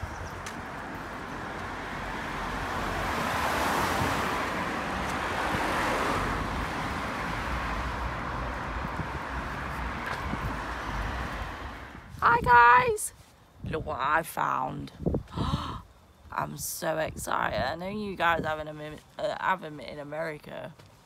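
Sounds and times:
steady traffic noise: 0.0s - 21.0s
car driving past: 1.3s - 12.0s.

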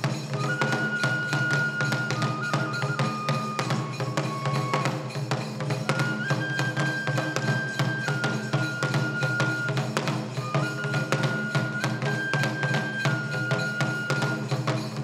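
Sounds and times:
bamboo flute long notes: 0.0s - 15.0s
drum strokes: 0.0s - 15.0s.

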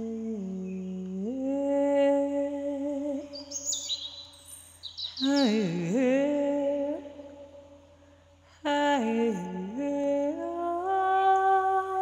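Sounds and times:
person humming: 0.0s - 3.8s, 5.2s - 7.6s, 8.5s - 12.0s
high bird chirps: 3.3s - 5.6s.

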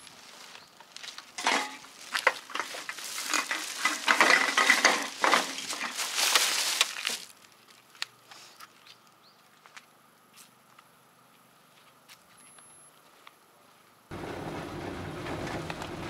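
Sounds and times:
plastic bags crinkling: 0.1s - 8.0s.

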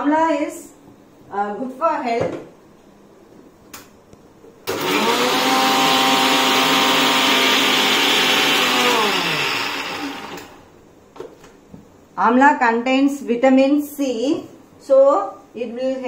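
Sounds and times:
motor winding down: 4.7s - 10.6s
mixer grinder whining: 4.7s - 10.7s.

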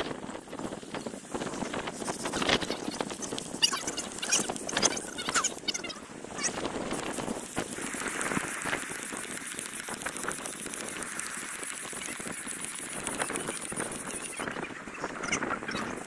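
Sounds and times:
hand pump strokes: 1.5s - 14.6s
air hissing through hose: 6.8s - 14.5s.

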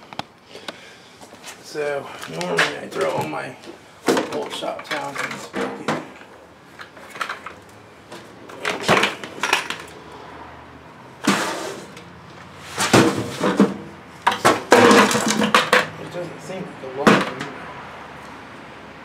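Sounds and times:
hard objects clattering and clinking: 4.0s - 10.0s, 12.8s - 16.0s.

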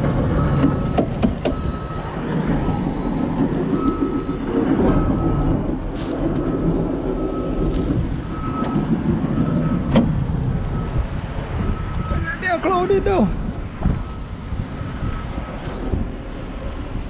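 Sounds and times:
excavator diesel engine running: 0.0s - 17.0s
knocks and clunks from cab: 0.5s - 1.8s, 9.8s - 10.2s, 13.8s - 14.1s.

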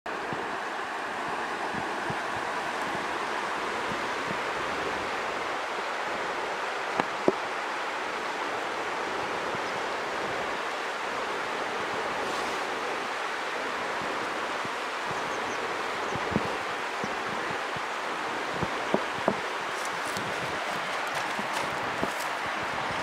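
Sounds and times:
river rushing over rocks: 0.1s - 23.0s.

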